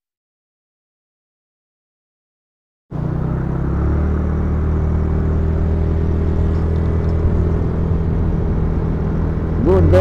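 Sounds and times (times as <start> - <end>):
motor scooter engine running: 2.9 - 10.0
wind and road noise: 2.9 - 10.0.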